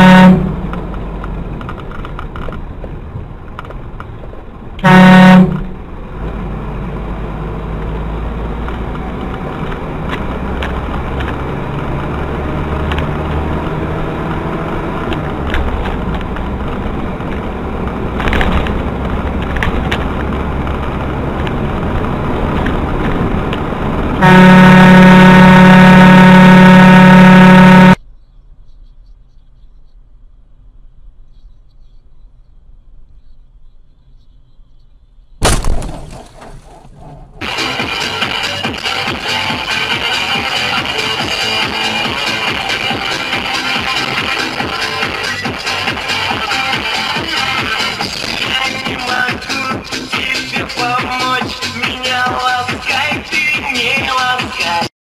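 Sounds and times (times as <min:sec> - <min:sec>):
car horn honking: 0:00.0 - 0:00.7, 0:04.8 - 0:05.8, 0:24.2 - 0:28.0
engine and road noise: 0:00.0 - 0:54.9.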